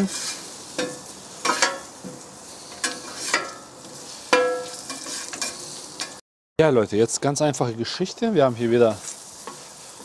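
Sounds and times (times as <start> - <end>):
metal utensil clinking on pan: 0.0 - 1.9, 2.8 - 3.7, 4.3 - 6.2
potatoes sizzling in fat: 0.0 - 6.2, 7.3 - 10.0.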